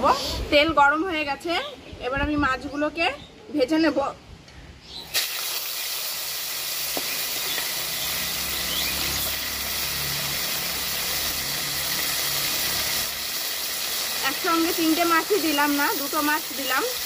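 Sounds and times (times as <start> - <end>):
fish sizzling in hot oil: 5.1 - 17.0.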